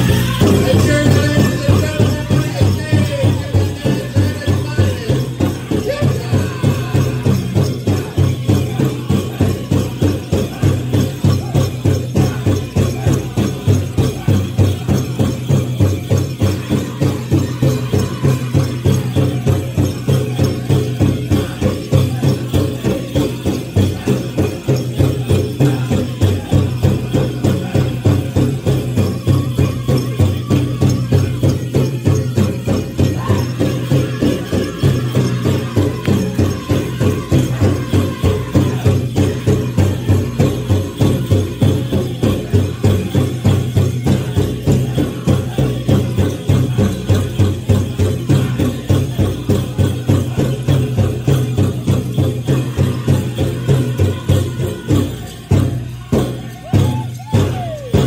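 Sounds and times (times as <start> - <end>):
drum group singing: 0.0 - 58.0
jingling bells: 0.0 - 58.0
large drum steady beat: 0.0 - 58.0.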